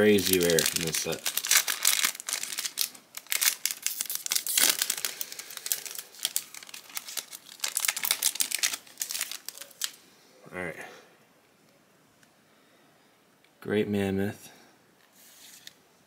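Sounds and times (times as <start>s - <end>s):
foil pack crinkling and tearing: 0.0s - 10.0s.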